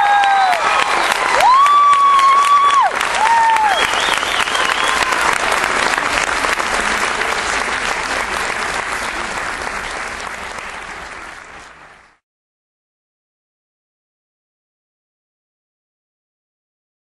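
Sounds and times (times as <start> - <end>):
high cheers: 0.0 - 6.2
audience applauding: 0.0 - 12.2.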